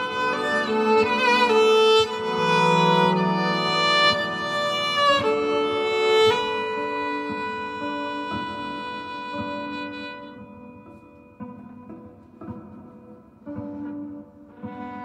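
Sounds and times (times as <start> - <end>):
looped bowed viola: 0.0 - 12.7, 13.4 - 15.0.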